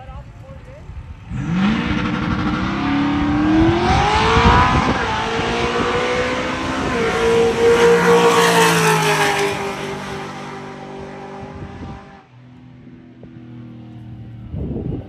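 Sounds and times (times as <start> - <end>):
race car accelerating hard: 1.2 - 12.3.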